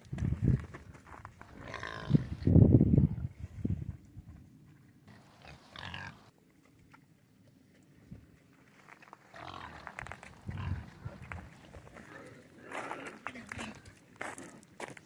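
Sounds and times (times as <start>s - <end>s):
pigs grunting: 1.5s - 2.5s, 5.1s - 6.3s, 9.3s - 13.8s
pig squealing: 5.1s - 6.3s.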